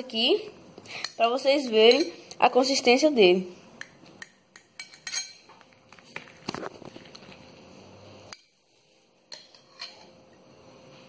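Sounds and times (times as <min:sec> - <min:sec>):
knife and spatula scraping plate: 0:09.4 - 0:10.2.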